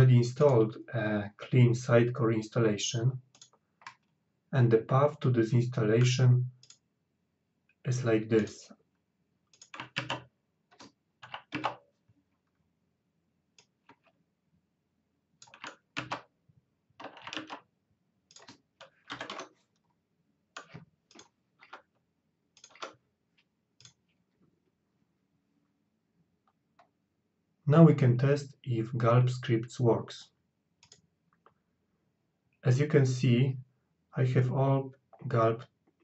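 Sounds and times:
computer keyboard typing: 9.6 - 11.8, 15.4 - 16.3, 17.0 - 17.6, 18.3 - 19.6, 20.6 - 21.9, 22.6 - 23.0.

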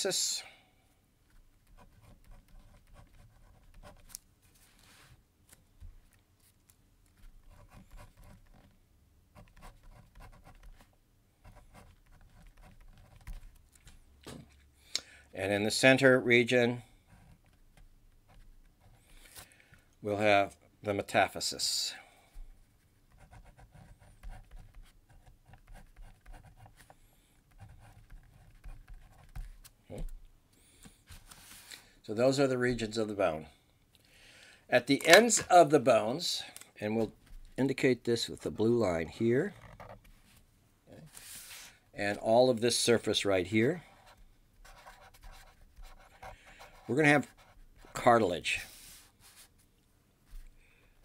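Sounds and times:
pen scratching on paper: 1.6 - 4.1, 7.4 - 8.7, 9.4 - 13.4, 23.1 - 29.5, 44.0 - 48.0.

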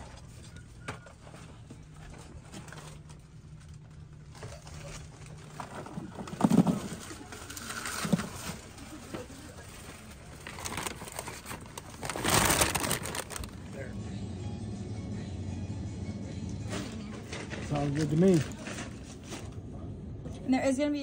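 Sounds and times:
paper bag rustling: 1.0 - 13.8, 16.7 - 19.6.

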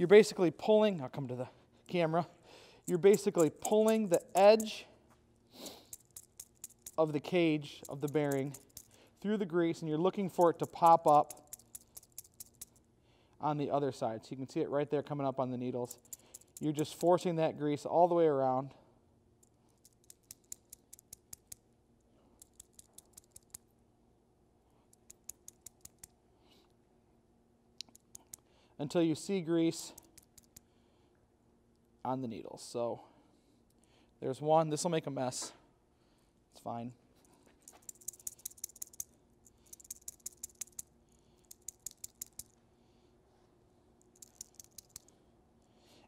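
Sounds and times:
roller bearing clicking: 2.9 - 4.8, 5.8 - 9.0, 10.2 - 12.8, 37.6 - 42.5.

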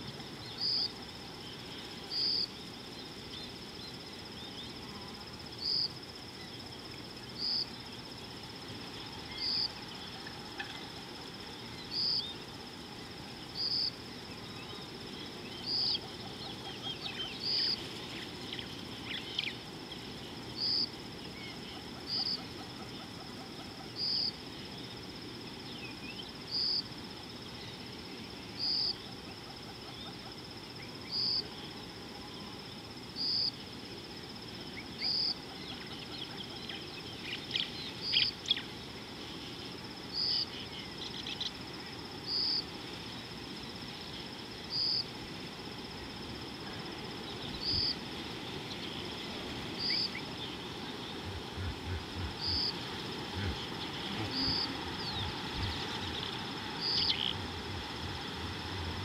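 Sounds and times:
high insect trill: 0.0 - 59.0
loud insect chirp: 0.0 - 59.0
low background rush: 40.5 - 59.0
bird calls: 49.8 - 59.0.

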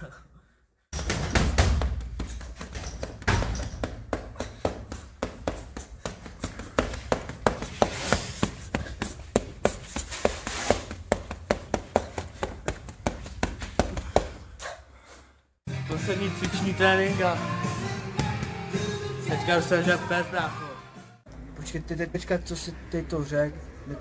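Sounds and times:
boxing gloves punching a torso: 1.0 - 14.5.

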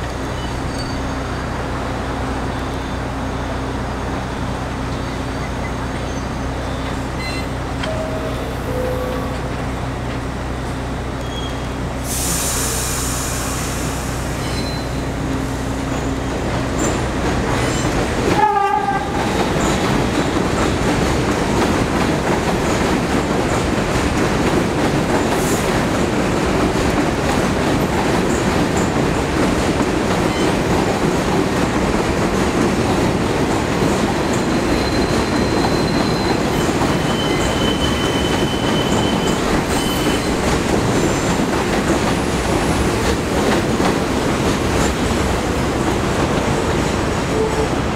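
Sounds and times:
train wheels on track: 0.0 - 47.9
train horn: 7.9 - 9.5, 18.3 - 19.4, 47.3 - 47.8
high hiss: 12.0 - 14.4.

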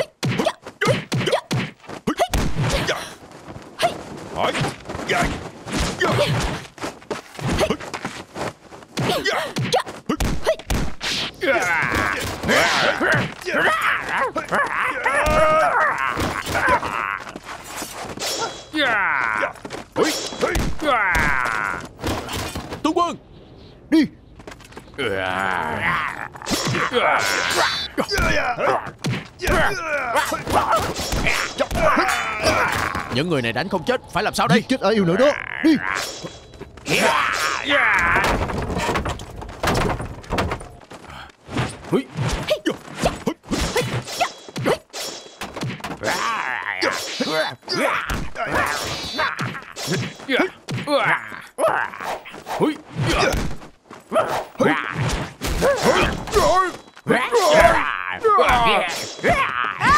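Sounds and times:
blows landing with whacks and thuds: 0.0 - 3.1, 8.9 - 14.6, 19.5 - 22.8, 26.4 - 33.1, 41.5 - 51.3, 51.9 - 59.9
punches landing with thuds: 0.2 - 3.0, 8.9 - 13.6, 28.0 - 33.1, 53.0 - 53.8
fighters grunting and crying out: 9.0 - 10.7, 11.4 - 17.5, 18.3 - 22.5, 25.0 - 33.4, 34.5 - 39.1, 45.9 - 59.9.

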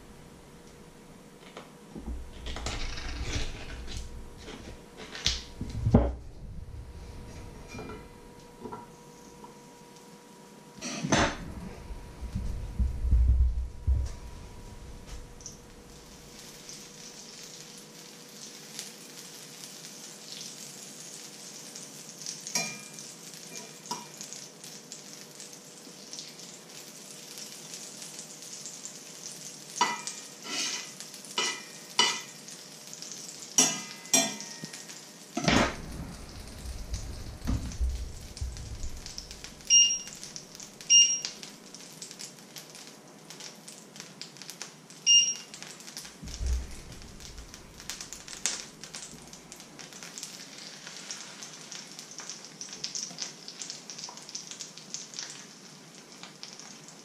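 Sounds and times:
butter sizzling in a frying pan: 15.1 - 57.0
short electronic beeps: 39.7 - 40.2, 40.9 - 41.3, 45.1 - 45.5.

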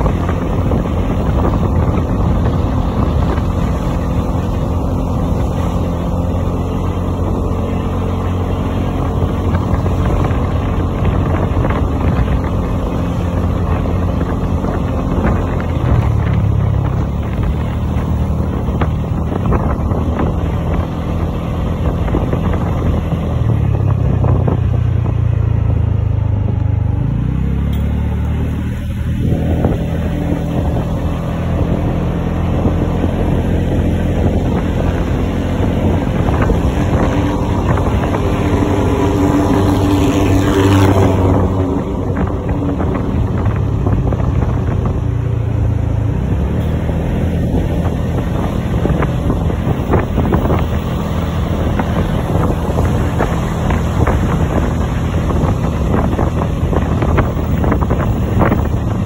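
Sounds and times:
scooter engine running: 0.0 - 59.0
wind rumble on microphone: 0.0 - 59.0.

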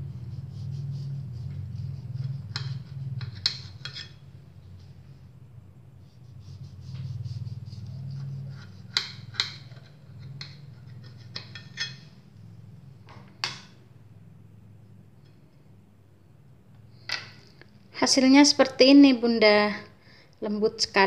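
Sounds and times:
steady low hum: 0.0 - 21.0
knife sawing through cake: 6.2 - 9.1
knife clinking on plate: 11.4 - 12.1.

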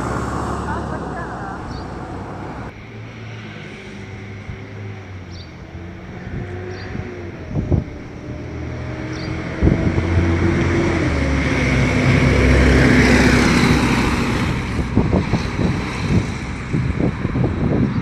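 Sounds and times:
car passing close: 0.0 - 18.0
diesel bus driving past: 0.0 - 18.0.

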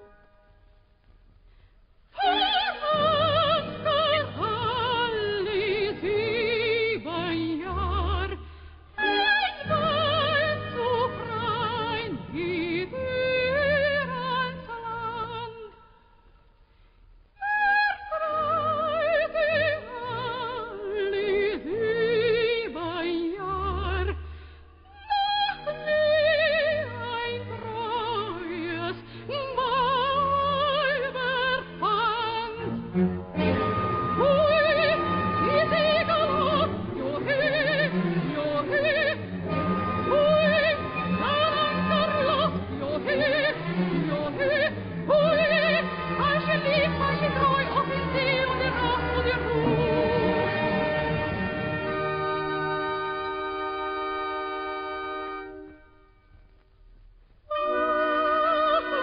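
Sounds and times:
soprano singing opera: 2.2 - 16.1, 17.4 - 53.6, 57.5 - 59.0
orchestra playing: 32.2 - 55.8.

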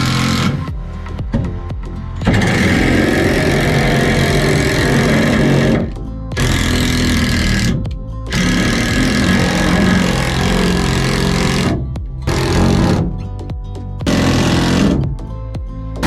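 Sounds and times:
impact driver driving screws: 2.2 - 13.3, 14.1 - 15.0.

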